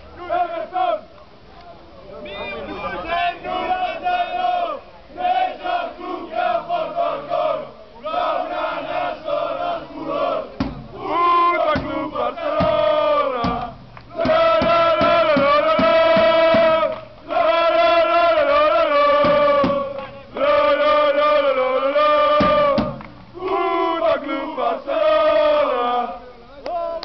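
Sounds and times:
men singing a chant: 0:03.0 - 0:27.0
bass drum beating: 0:10.6 - 0:16.9, 0:19.2 - 0:20.2, 0:22.4 - 0:23.3.

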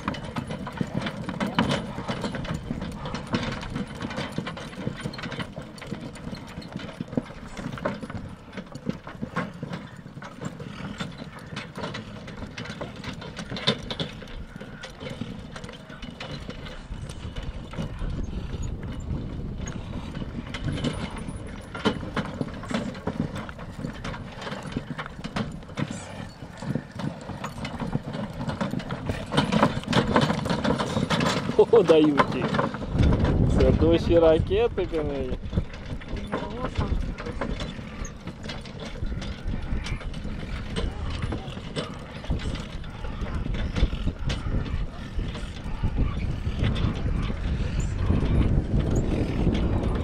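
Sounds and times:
horse hooves clip-clopping: 0:00.0 - 0:50.0.

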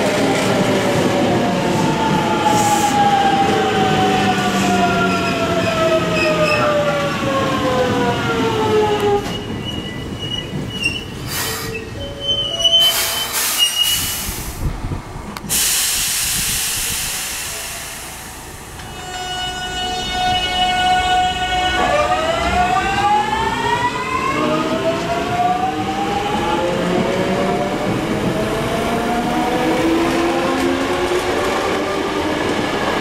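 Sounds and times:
wheel and brake squeal: 0:06.2 - 0:06.8, 0:09.2 - 0:14.2
air hiss: 0:12.9 - 0:14.8, 0:15.4 - 0:18.8.

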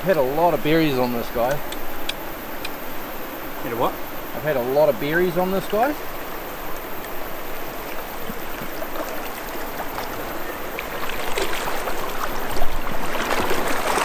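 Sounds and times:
river water running: 0:00.0 - 0:14.0
legs splashing through water: 0:07.0 - 0:14.0.

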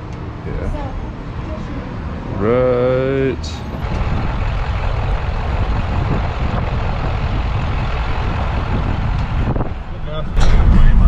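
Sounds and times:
vehicle road and engine rumble: 0:00.0 - 0:11.0.

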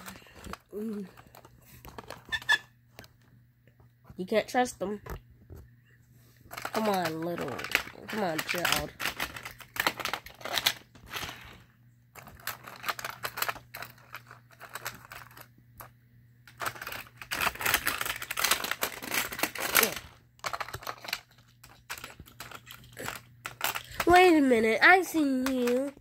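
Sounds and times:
plastic toy pieces clicking: 0:06.5 - 0:11.6, 0:12.2 - 0:15.9, 0:16.5 - 0:24.3, 0:25.1 - 0:26.0.

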